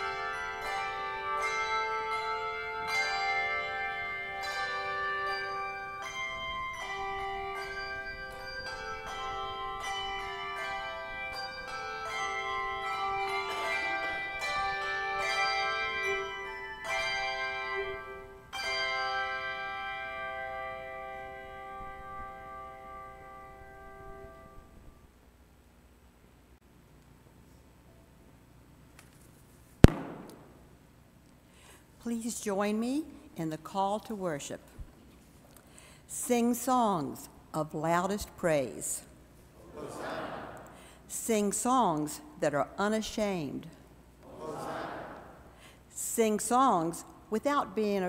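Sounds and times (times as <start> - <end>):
handbell choir ringing chords: 0.0 - 24.6.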